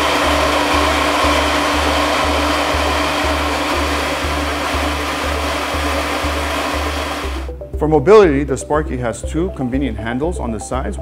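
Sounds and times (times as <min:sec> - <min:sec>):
spark machine rushing hiss: 0:00.0 - 0:07.5
background music with bass beat: 0:00.0 - 0:11.0.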